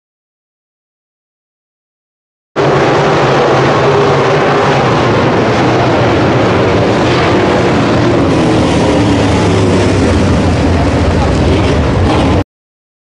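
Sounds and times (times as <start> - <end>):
race car engines running: 2.6 - 12.4.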